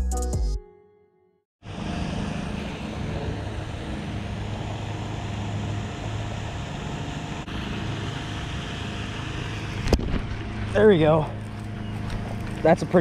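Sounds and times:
wind buffeting microphone: 9.0s - 12.7s.

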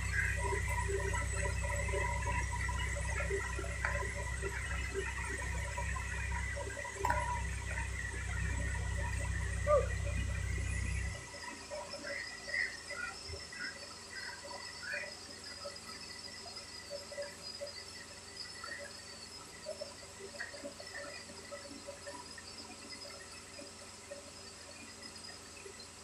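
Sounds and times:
crane diesel engine running: 0.0s - 11.3s
faint chirps: 0.0s - 26.0s
steady high whine: 0.0s - 26.0s.

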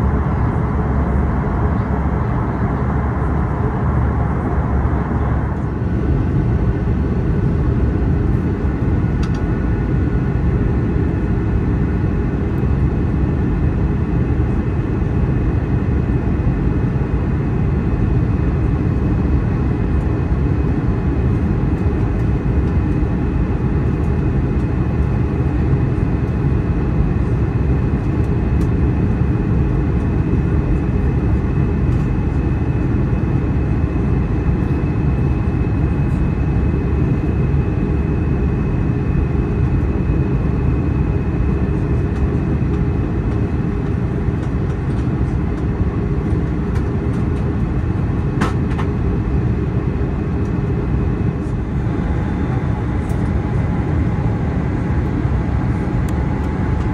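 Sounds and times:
airplane cabin engine rumble: 0.0s - 56.9s
faint steady whine: 0.0s - 56.9s
small click: 9.2s - 9.4s.

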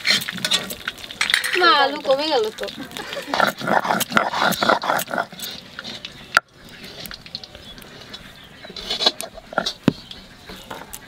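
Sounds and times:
stone grinding on stone: 8.0s - 11.0s.

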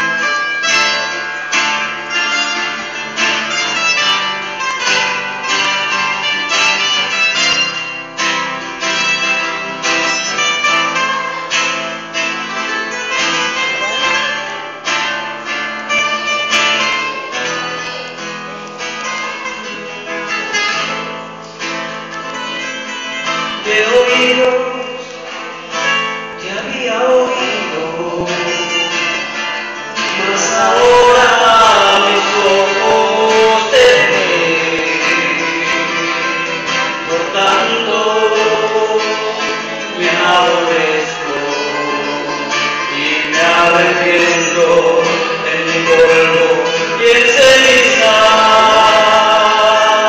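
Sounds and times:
strummed guitar: 0.0s - 50.0s
people singing: 26.4s - 29.3s, 30.0s - 50.0s.

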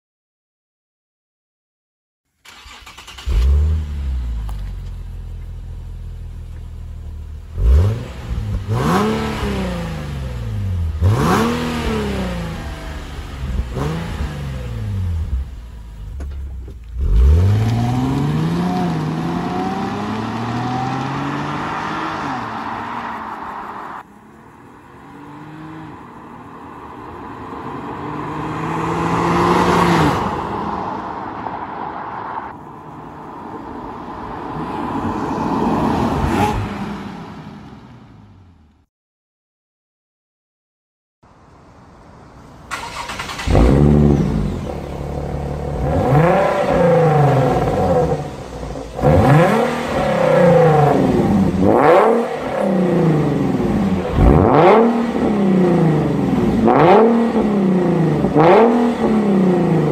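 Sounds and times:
car engine starting and idling: 2.3s - 34.0s, 41.3s - 59.9s
car engine revving: 2.5s - 32.2s, 42.7s - 59.9s.

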